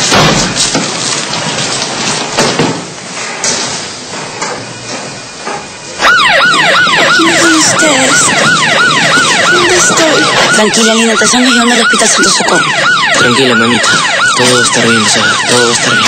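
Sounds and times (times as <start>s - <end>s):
ambulance siren wailing: 6.0s - 16.0s.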